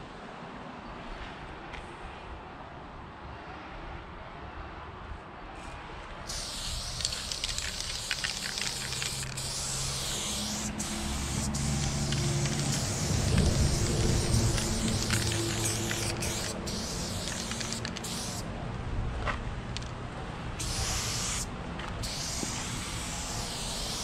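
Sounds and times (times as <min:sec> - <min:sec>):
spray can hissing: 0:06.3 - 0:18.5, 0:20.6 - 0:24.0.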